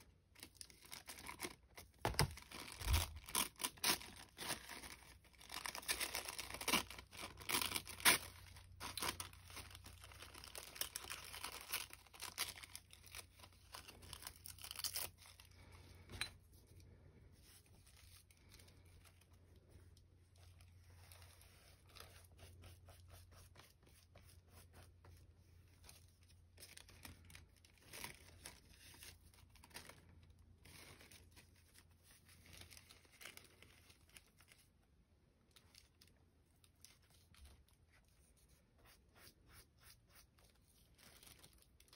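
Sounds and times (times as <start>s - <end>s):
paper tearing and crinkling: 0.8s - 15.6s
paper brushing and handling: 17.3s - 27.1s.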